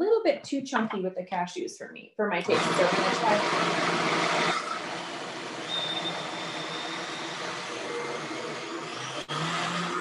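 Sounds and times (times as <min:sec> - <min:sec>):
blender motor running: 0:02.4 - 0:10.0.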